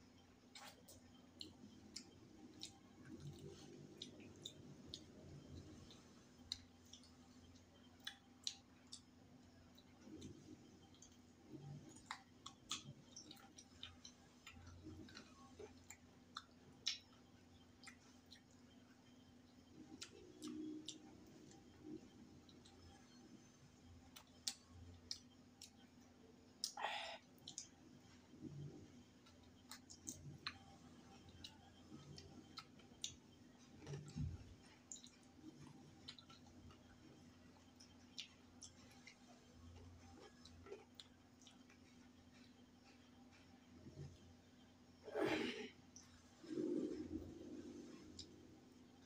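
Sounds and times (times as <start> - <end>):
person chewing: 0.5 - 9.1, 9.7 - 18.6, 19.7 - 23.2, 24.1 - 25.9, 26.6 - 42.6, 46.4 - 48.6
mouth clicks and smacks eating: 0.5 - 18.8, 19.6 - 23.1, 24.1 - 26.8, 27.4 - 27.8, 28.5 - 44.1.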